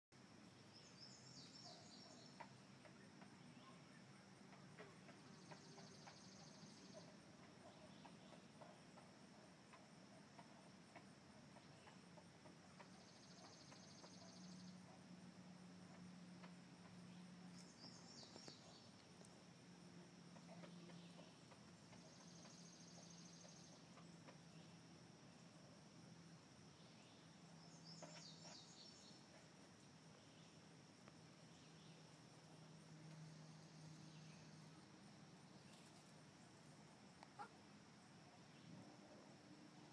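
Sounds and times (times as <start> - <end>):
small birds calling: 0.6 - 15.1, 15.8 - 25.6, 26.7 - 39.9
high insect whine: 4.8 - 7.0.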